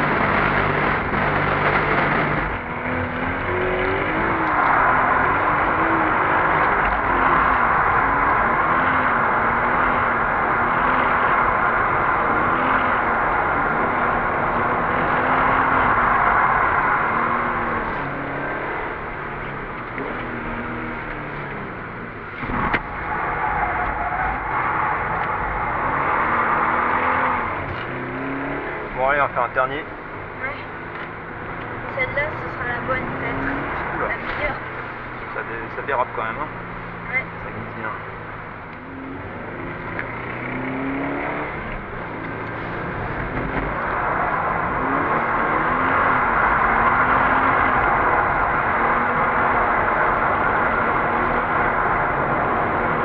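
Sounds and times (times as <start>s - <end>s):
tyres rushing on wet track: 0.0s - 21.5s, 22.3s - 28.0s, 41.5s - 53.0s
car engine revving: 0.0s - 53.0s.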